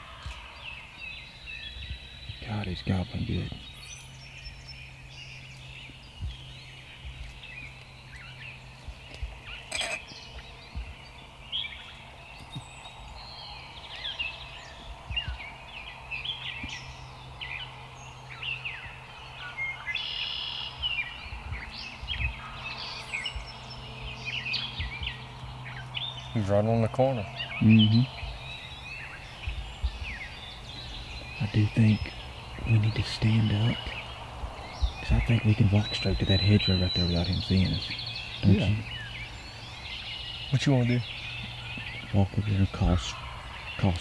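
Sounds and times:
songbirds chirping and singing: 0.0 - 44.0
steady low hum: 0.0 - 44.0
distant turkey gobbling: 37.8 - 44.0.

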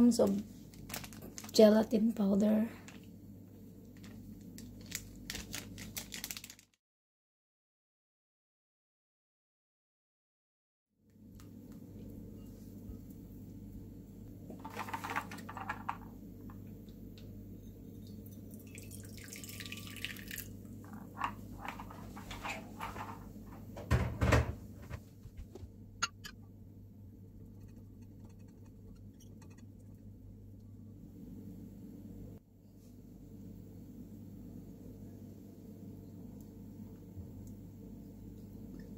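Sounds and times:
steady low hum: 20.4 - 38.9.

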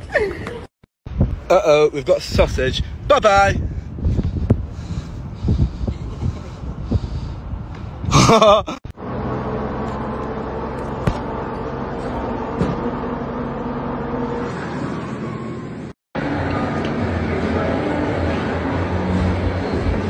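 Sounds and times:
bus engine droning: 4.0 - 20.0.

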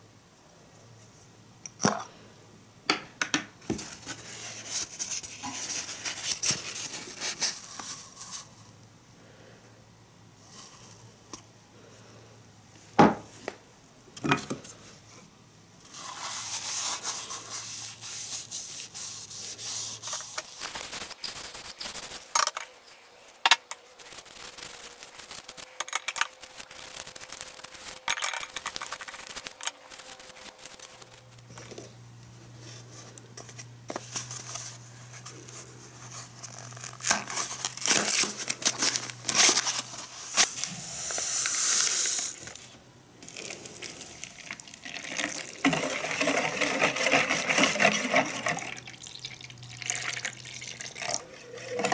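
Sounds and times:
paper towel scraping plastic: 3.7 - 8.6, 15.9 - 22.2, 45.1 - 48.7, 51.3 - 51.9
paper packet crinkling: 3.8 - 8.6, 20.0 - 22.5, 23.9 - 31.9, 34.0 - 40.8, 41.4 - 51.9
plastic pieces clicking: 23.5 - 31.3.

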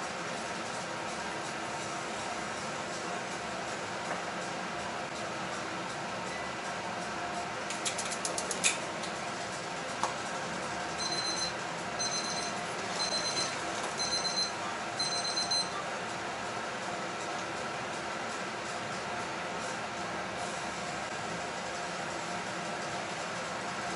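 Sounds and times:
electronic timer beeping: 11.0 - 15.7.

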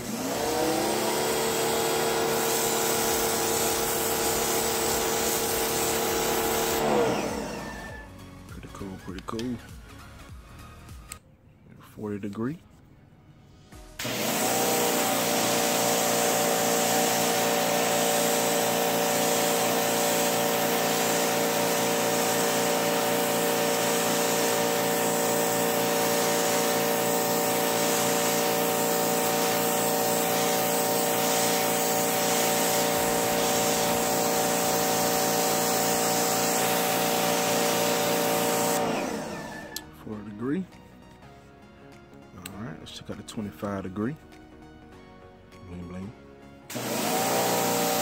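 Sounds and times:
pressure washer motor humming: 0.0 - 8.1, 14.0 - 40.0, 46.7 - 48.0
water spray hissing on concrete: 1.0 - 6.8, 14.3 - 38.8, 46.7 - 48.0.

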